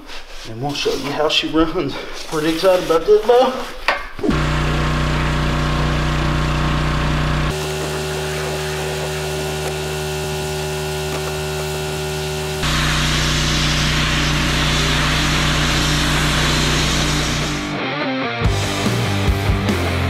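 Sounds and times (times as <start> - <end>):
pressure washer engine running: 4.3 - 17.8
high-pressure water spray hissing: 7.5 - 17.7.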